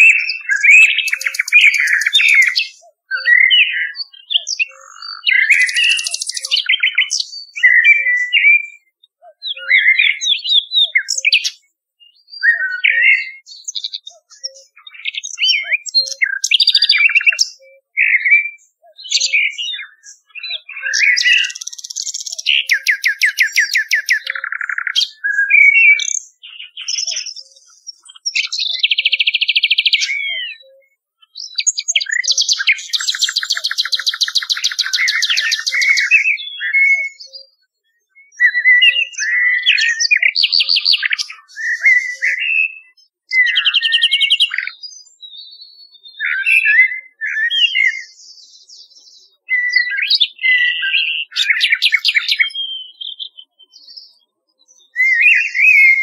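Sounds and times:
blackbird song: 0:00.0 - 0:56.0
nightingale song: 0:00.0 - 0:56.0.

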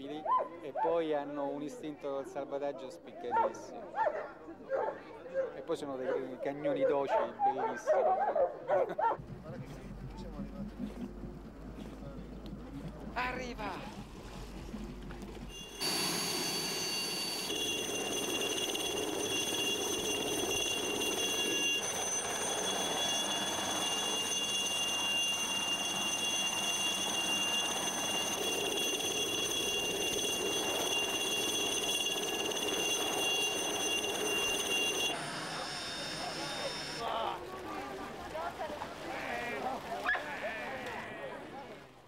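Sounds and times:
helicopter turbine whine: 0:09.2 - 0:39.0.

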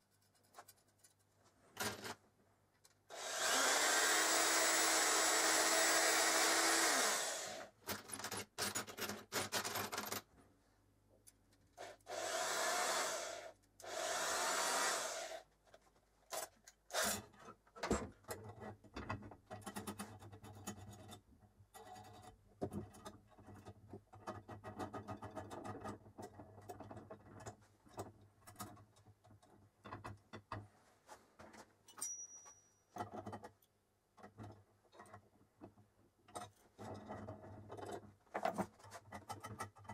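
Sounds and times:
metal parts clicking and knocking: 0:07.8 - 0:10.3, 0:16.3 - 0:30.7, 0:31.9 - 0:39.9.

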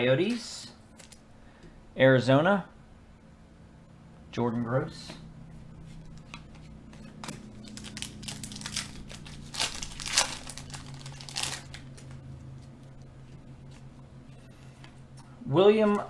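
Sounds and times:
cards rustling: 0:05.8 - 0:15.1
card pack wrapper crinkling: 0:07.2 - 0:12.2.

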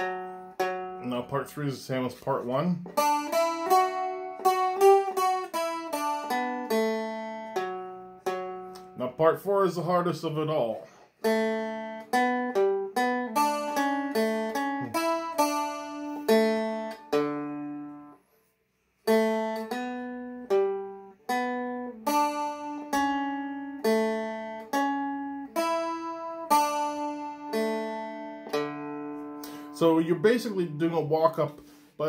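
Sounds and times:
plucked string instrument melody: 0:00.0 - 0:32.0.

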